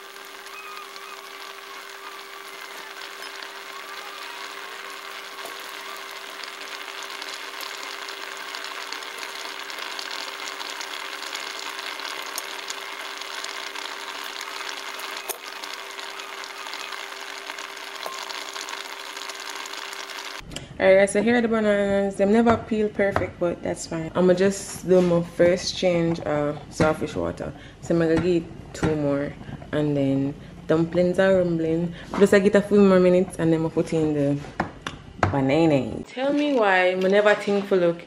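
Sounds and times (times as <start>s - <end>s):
water boiling in a pot: 0.0s - 20.4s.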